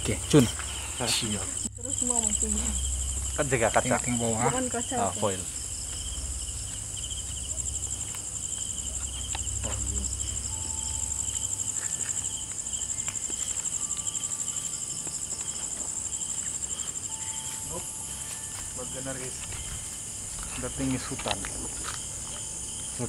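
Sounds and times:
low rumble: 0:00.0 - 0:13.0
insects trilling: 0:00.0 - 0:23.0.

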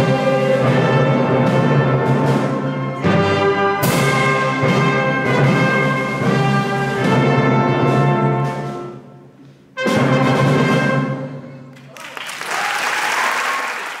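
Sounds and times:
audience applause: 0:11.7 - 0:14.0.

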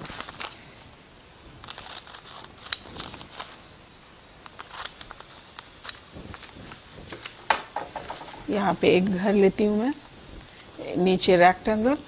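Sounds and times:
paper rustling: 0:00.0 - 0:00.7, 0:01.6 - 0:03.7, 0:04.4 - 0:08.7
scissors snipping paper: 0:01.7 - 0:03.6, 0:04.4 - 0:06.6.

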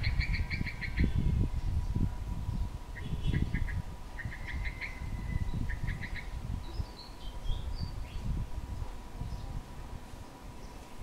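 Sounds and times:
bird chirping: 0:00.0 - 0:02.0, 0:03.0 - 0:08.3.

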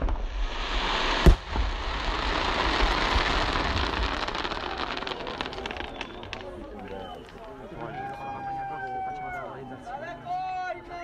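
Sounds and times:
firework pops: 0:00.0 - 0:07.6
firework crackling: 0:00.0 - 0:08.4.

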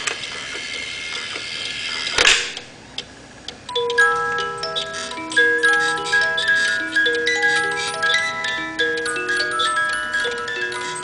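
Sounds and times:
clock works clattering: 0:03.7 - 0:11.0
music box playing a tune: 0:03.7 - 0:11.0.

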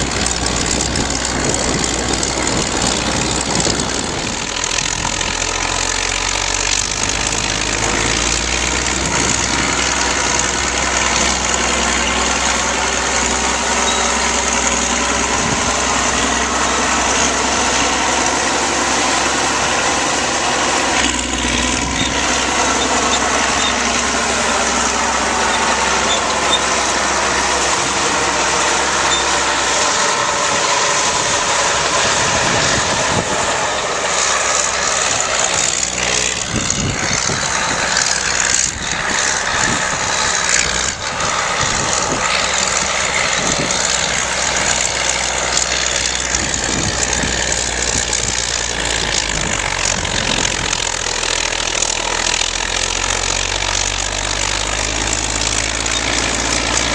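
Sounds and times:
diesel engine droning: 0:00.0 - 0:56.9.

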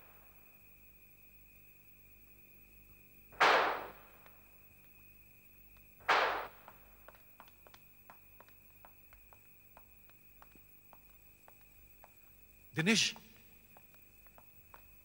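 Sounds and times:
sharp noisy hits: 0:06.1 - 0:06.6.

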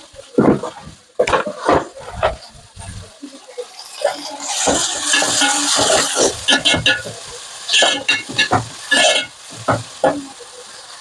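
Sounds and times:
food sizzling in hot oil: 0:02.0 - 0:11.0
spatula scraping pan: 0:03.8 - 0:11.0.

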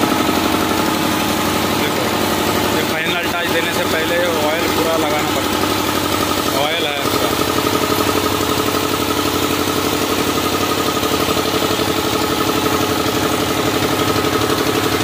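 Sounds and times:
machine engine running: 0:00.0 - 0:15.0.

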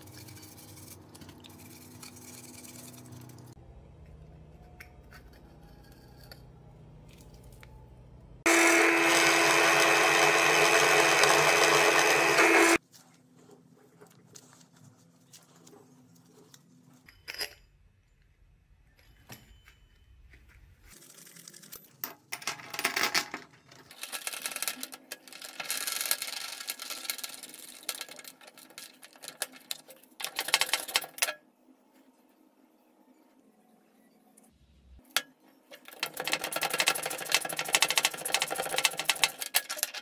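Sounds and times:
metal parts clinking and scraping: 0:17.0 - 0:17.8, 0:38.2 - 0:40.0.

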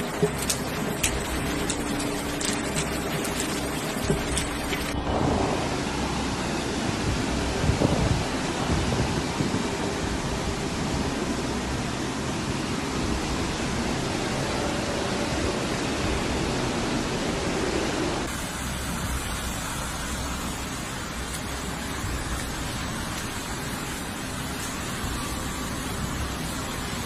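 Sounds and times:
floodwater rushing: 0:00.0 - 0:07.6, 0:18.2 - 0:27.0.

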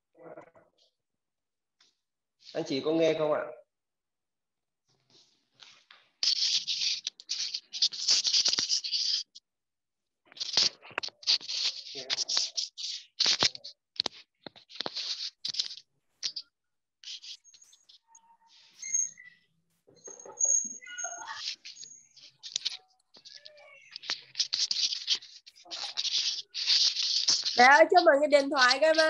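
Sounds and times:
scratchy rustling and rubbing: 0:05.0 - 0:09.4, 0:10.3 - 0:29.0.

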